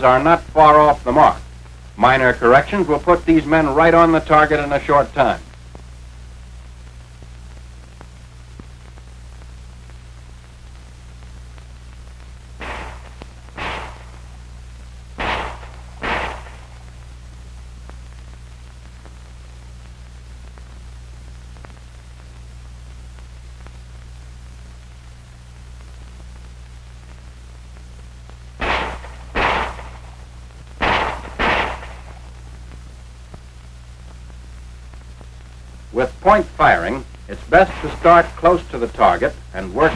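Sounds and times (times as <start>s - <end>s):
film soundtrack hum and hiss: 0.0s - 39.9s
pistol shots: 12.6s - 14.3s, 15.2s - 16.9s, 28.6s - 30.2s, 30.8s - 32.3s.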